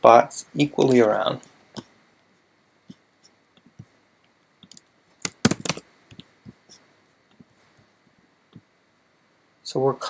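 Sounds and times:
keyboard keystrokes: 4.6 - 6.2.

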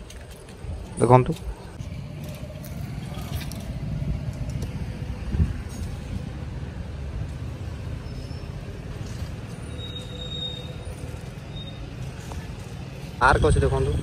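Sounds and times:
vehicle rumble on highway: 0.0 - 14.0.

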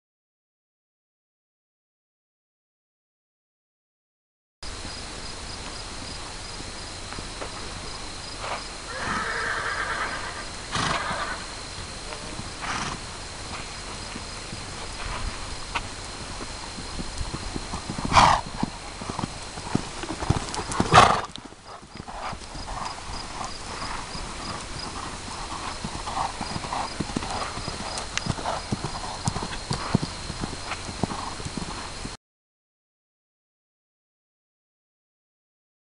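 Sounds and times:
horse whinny: 8.9 - 11.6, 12.6 - 13.0, 18.1 - 18.4, 20.8 - 21.3
horse hoofbeats on sand: 11.6 - 32.2.

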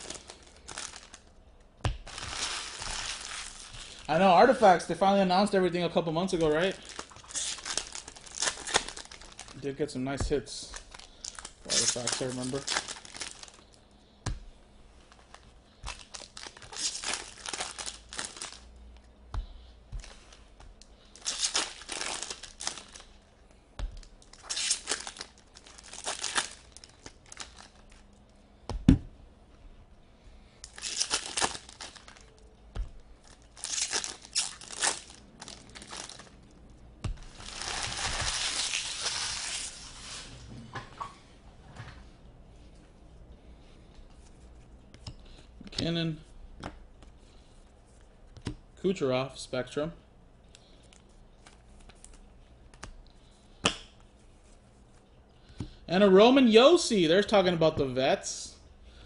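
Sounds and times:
foil wrapper crinkling: 0.0 - 1.3, 2.0 - 4.6, 6.2 - 9.9, 10.6 - 13.8, 15.2 - 18.7, 21.1 - 23.2, 24.0 - 28.1, 30.6 - 32.4, 33.2 - 36.4, 37.2 - 40.2.

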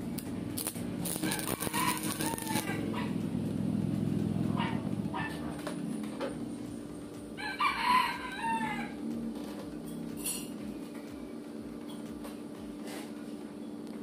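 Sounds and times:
steady low hum: 0.0 - 14.0
rooster crowing: 1.1 - 3.1, 7.4 - 9.1.

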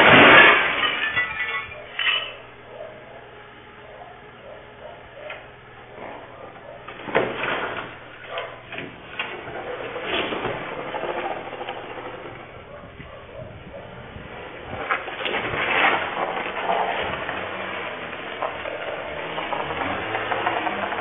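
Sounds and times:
car crashing into container: 0.0 - 2.4, 6.9 - 12.8, 14.5 - 21.0
knocking and clattering: 6.8 - 13.2.

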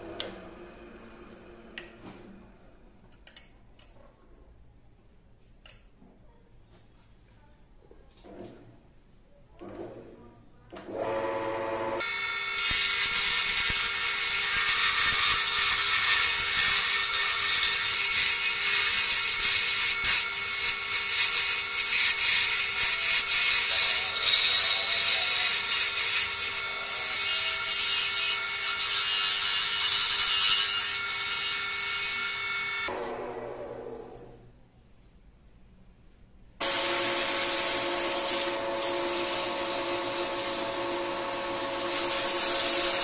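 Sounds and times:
lathe motor whine: 36.6 - 43.0.

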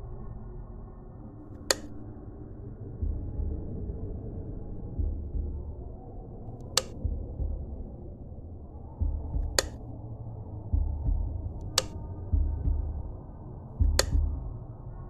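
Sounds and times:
low drone: 0.0 - 15.0
sharp high clicks: 1.6 - 2.0, 6.6 - 7.0, 9.4 - 9.8, 11.6 - 12.0, 13.8 - 14.2
low thumps: 3.0 - 3.8, 6.7 - 8.0, 9.0 - 9.9, 10.7 - 13.2, 13.8 - 14.6.

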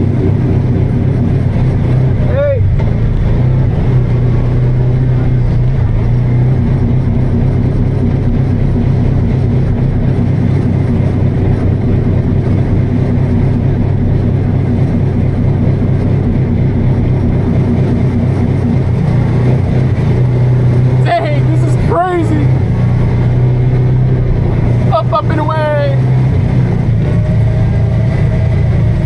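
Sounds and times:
utility vehicle engine running: 0.0 - 29.0.

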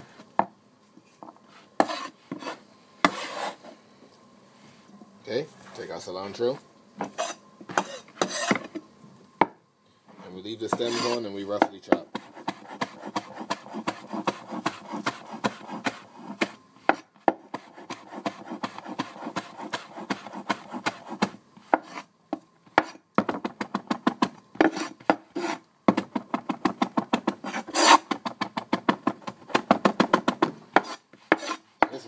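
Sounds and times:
cleaver chopping on wooden board: 11.6 - 22.0.

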